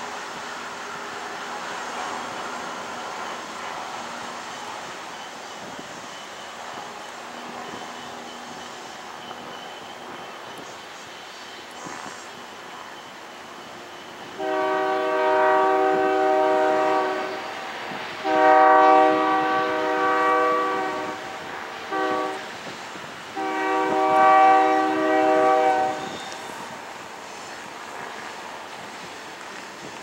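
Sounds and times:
locomotive air horn blasts: 0:14.4 - 0:17.6, 0:18.2 - 0:22.6, 0:23.4 - 0:26.5.

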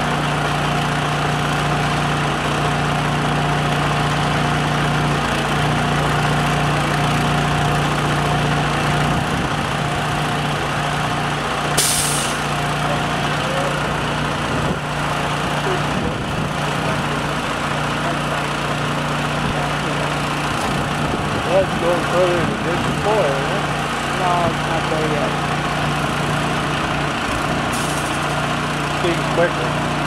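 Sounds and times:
machinery engine hum: 0:00.0 - 0:30.0
sharp hiss: 0:11.8 - 0:12.5.

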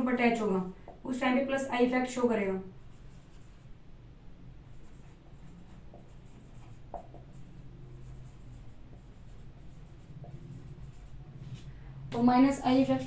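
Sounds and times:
steady low hum: 0:02.4 - 0:13.0
marker scratching on whiteboard: 0:02.8 - 0:03.7, 0:04.7 - 0:13.0.

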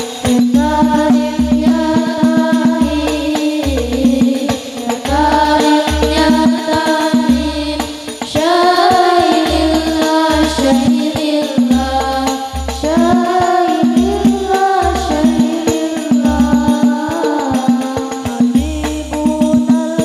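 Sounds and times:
girls singing through microphones: 0:00.0 - 0:20.0
rattling tambourine-like percussion: 0:00.0 - 0:20.0.

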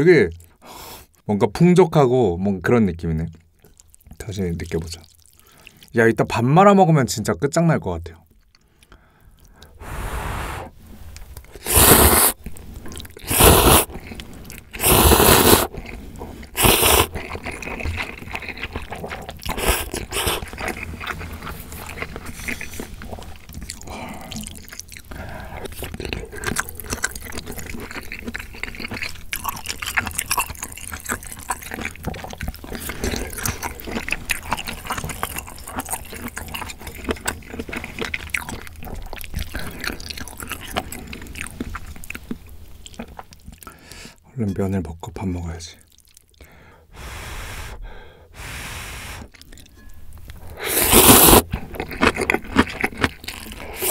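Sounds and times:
wet chewing: 0:03.3 - 0:05.9, 0:11.1 - 0:43.9, 0:45.8 - 0:53.9
slurping noodles: 0:09.6 - 0:28.8, 0:47.0 - 0:49.7, 0:50.4 - 0:53.9.

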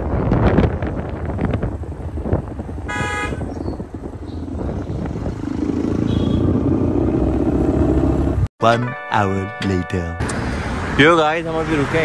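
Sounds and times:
motorcycle engine rumble: 0:00.0 - 0:08.5
wind: 0:00.0 - 0:12.0
vehicle horn honking: 0:02.9 - 0:03.5, 0:06.0 - 0:06.6.

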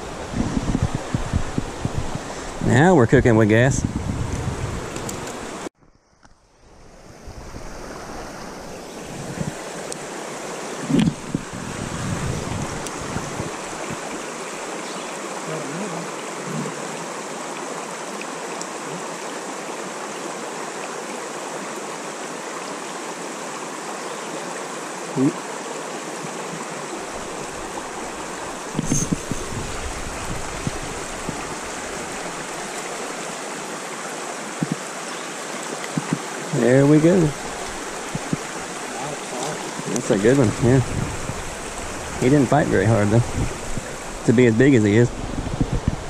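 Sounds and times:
stream rushing over rocks: 0:00.0 - 0:05.7, 0:06.6 - 0:46.0.

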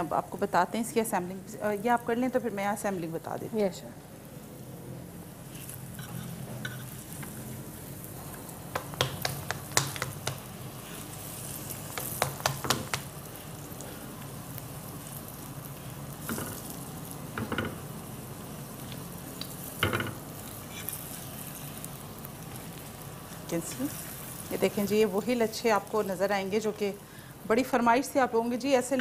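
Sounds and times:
flatbread sizzling in a pan: 0:04.2 - 0:27.6
spatula scraping a pan: 0:05.5 - 0:07.0, 0:20.5 - 0:21.2.

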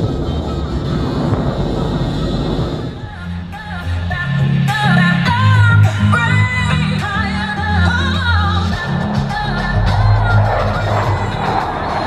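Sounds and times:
pop music with singing voice: 0:02.8 - 0:12.0.

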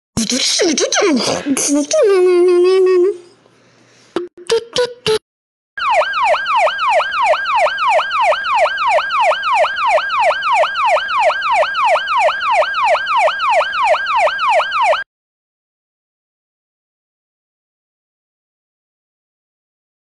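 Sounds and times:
electronic siren whooping: 0:05.8 - 0:15.1.

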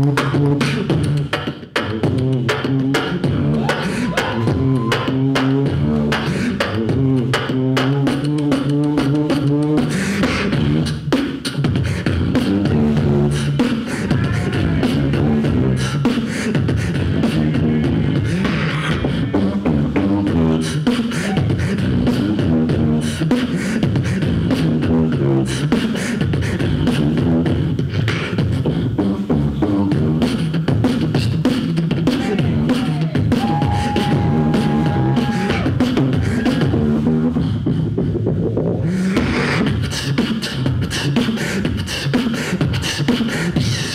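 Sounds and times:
hummed bass line: 0:00.0 - 0:41.8
person beatboxing: 0:00.0 - 0:43.9
held high vocal tone: 0:03.2 - 0:05.8, 0:13.0 - 0:19.7, 0:20.6 - 0:22.0, 0:31.9 - 0:38.0.

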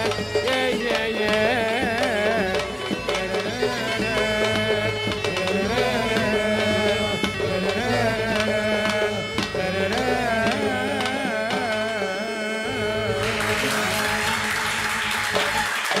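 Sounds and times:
frame drums: 0:00.0 - 0:12.0
man singing: 0:00.0 - 0:15.2
applause: 0:13.2 - 0:16.0.

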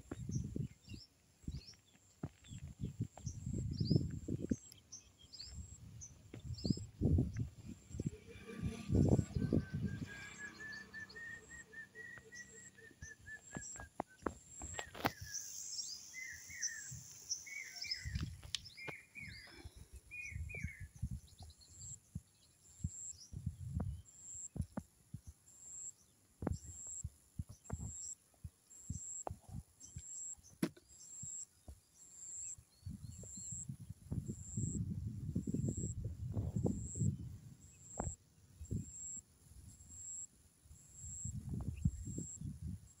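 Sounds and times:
low rumbles on microphone: 0:00.0 - 0:01.7, 0:02.5 - 0:04.6, 0:05.5 - 0:10.2, 0:23.3 - 0:24.0, 0:32.8 - 0:38.9, 0:41.3 - 0:42.8
birds calling: 0:07.9 - 0:20.9.

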